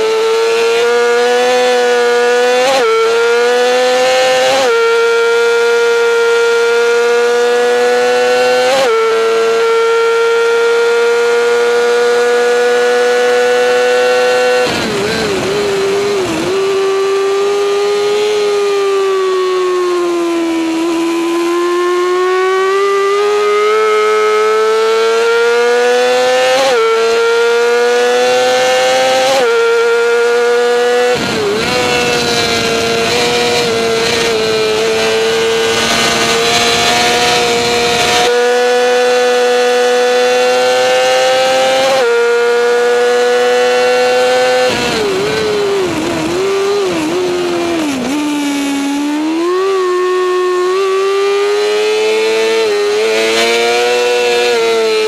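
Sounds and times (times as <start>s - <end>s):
racing motorcycle engine revving: 0.0s - 55.0s
wind rushing: 30.8s - 38.3s.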